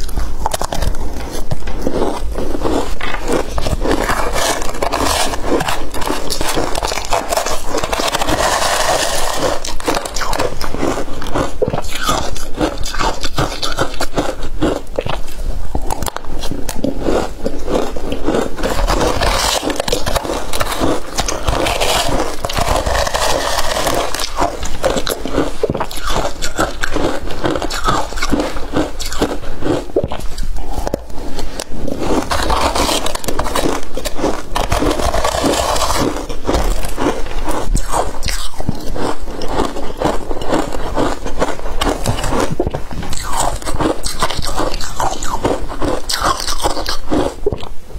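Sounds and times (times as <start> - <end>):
metal spoon scraping plastic bowl: 0.0 - 14.4, 18.1 - 30.4
crunching and chewing ice: 0.0 - 47.9.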